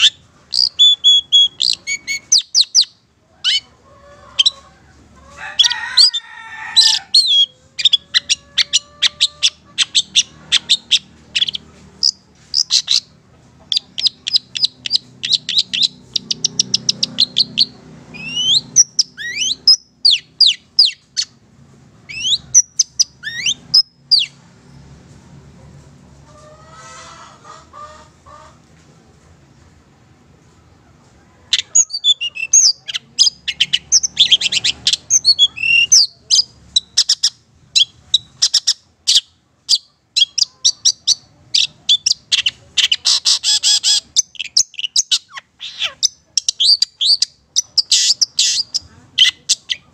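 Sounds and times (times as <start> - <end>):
bird singing varied phrases: 0.0 - 3.7, 6.8 - 21.4, 22.0 - 24.4, 31.5 - 49.9.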